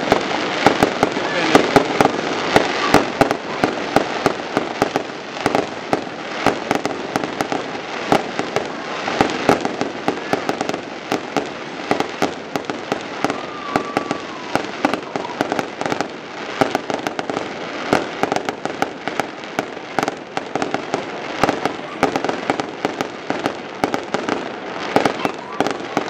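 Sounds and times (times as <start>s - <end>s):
fireworks bangs and crackles: 0.0s - 26.0s.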